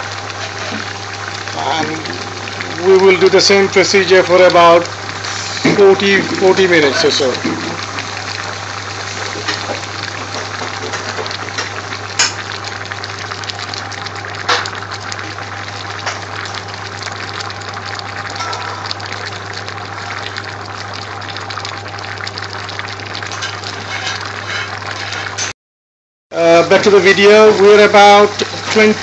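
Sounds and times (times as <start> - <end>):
pot of vegetables boiling: 0.0 - 25.5, 26.4 - 29.0
sharp pops: 9.2 - 12.6.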